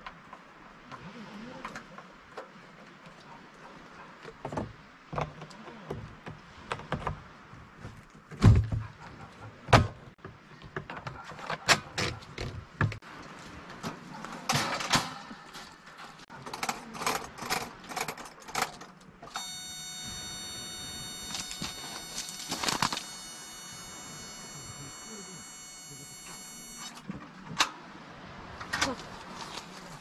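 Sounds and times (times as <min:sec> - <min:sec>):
heater buzzing: 0:19.3 - 0:27.0.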